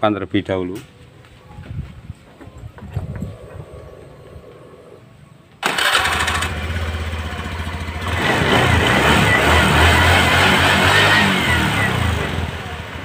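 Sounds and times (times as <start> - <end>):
scooter engine running: 5.6 - 13.0.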